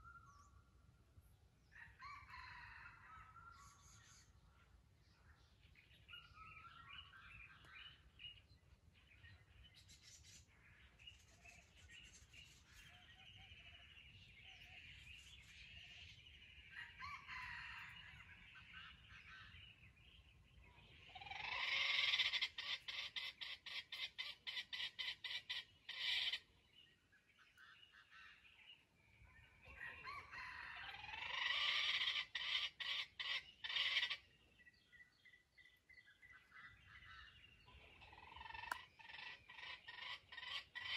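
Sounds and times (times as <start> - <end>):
junglefowl calling: 21.1 - 26.5, 29.8 - 34.3, 36.5 - 40.9.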